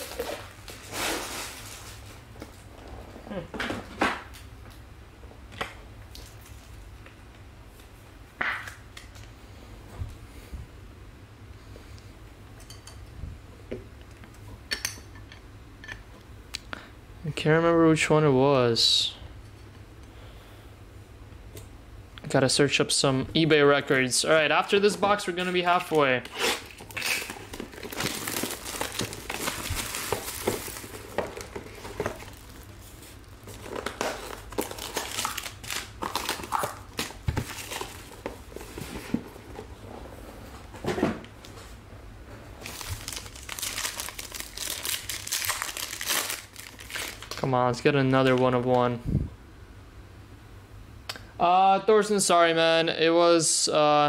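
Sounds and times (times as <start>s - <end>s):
low steady hum: 0.0s - 54.0s
cardboard box rustling: 27.2s - 35.1s.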